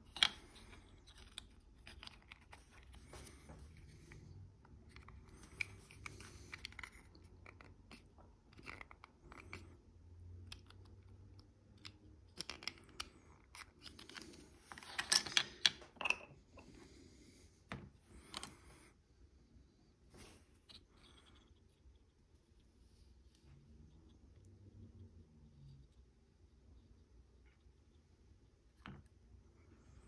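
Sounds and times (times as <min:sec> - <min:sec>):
plastic parts clicking and clattering: 0:11.8 - 0:16.2.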